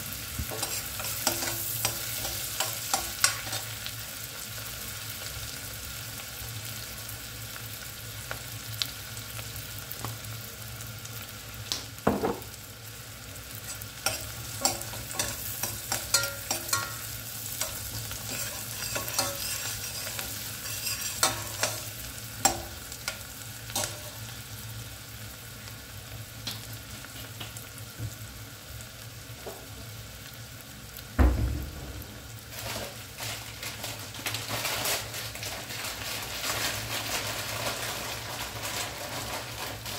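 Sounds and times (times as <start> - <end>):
onions sizzling in oil: 0.0 - 39.9
metal spoon scraping pot: 17.6 - 21.9
loud thump: 31.2 - 32.5.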